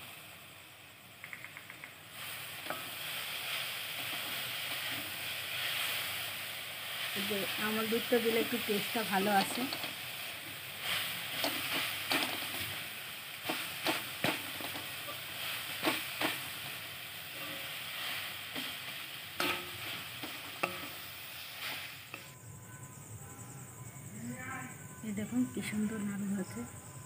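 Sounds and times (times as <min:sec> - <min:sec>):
frying sizzle: 0:00.0 - 0:22.4
metal spatula scraping a pan: 0:02.6 - 0:22.3.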